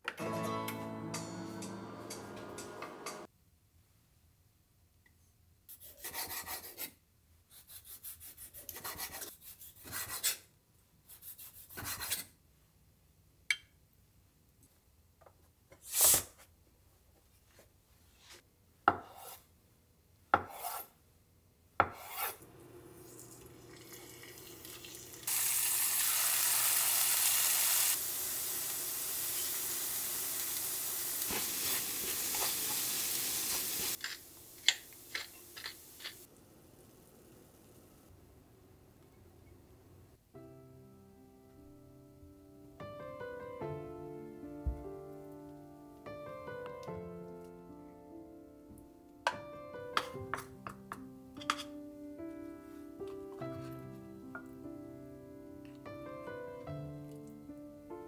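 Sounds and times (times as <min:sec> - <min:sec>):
tofu sizzling in a pan: 0:23.5 - 0:37.7
spatula stirring in a pan: 0:31.2 - 0:36.3.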